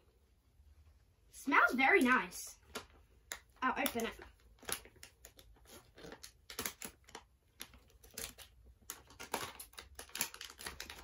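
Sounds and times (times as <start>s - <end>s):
scissors cutting plastic: 3.8s - 11.0s
plastic packaging crinkling: 3.9s - 11.0s.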